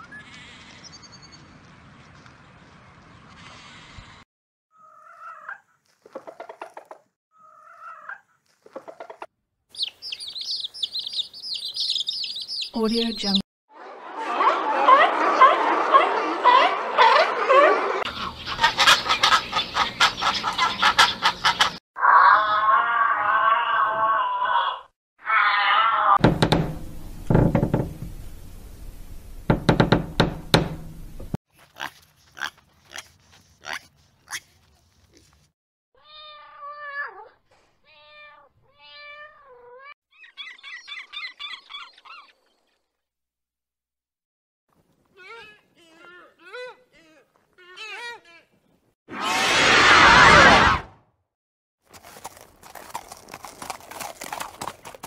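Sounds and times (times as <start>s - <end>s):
chicken calling and clucking: 4.8s - 12.7s, 13.9s - 23.3s
guinea pig crunching carrot: 31.5s - 35.4s, 51.9s - 55.0s.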